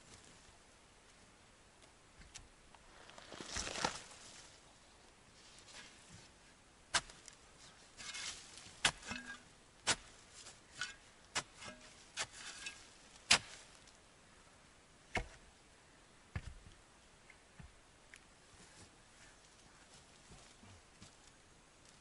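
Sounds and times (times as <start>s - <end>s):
earth scraping and rustling: 2.2s - 14.0s
shovel chopping into soil: 6.9s - 7.4s, 8.0s - 13.7s, 15.1s - 15.4s.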